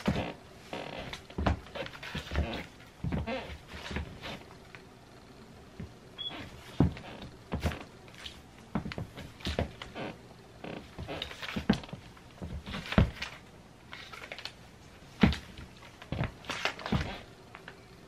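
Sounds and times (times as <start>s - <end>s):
sneakers stepping on wooden floor: 0.0s - 4.4s, 5.8s - 13.4s, 15.2s - 17.3s.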